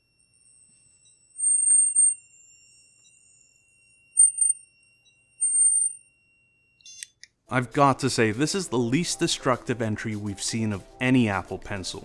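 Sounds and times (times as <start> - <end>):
faint high whine: 0.0 - 7.1.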